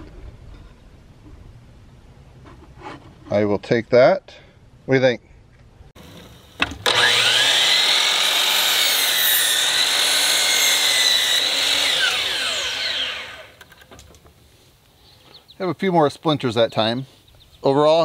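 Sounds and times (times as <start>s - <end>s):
saw cutting through board: 6.0s - 13.6s
miter saw whining: 6.0s - 13.8s.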